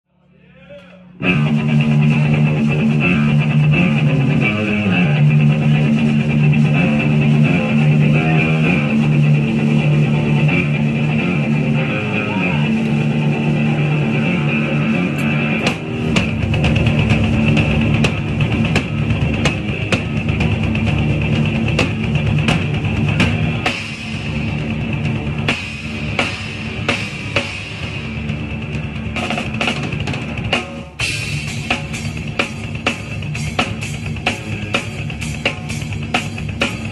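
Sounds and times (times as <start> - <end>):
drum kit beat: 1.1 - 36.9
electric guitar chords: 1.1 - 36.9.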